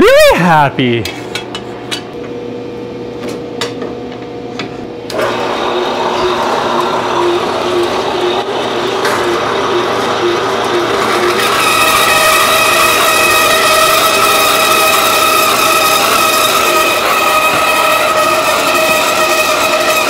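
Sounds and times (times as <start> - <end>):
band saw running: 5.1 - 20.0
saw blade cutting metal: 10.2 - 20.0.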